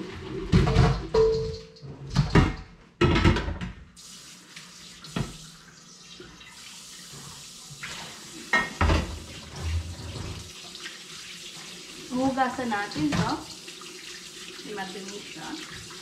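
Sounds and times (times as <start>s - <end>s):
metal pot clanking against sink: 0.4s - 3.8s, 8.5s - 9.8s
water running into sink: 3.6s - 16.0s.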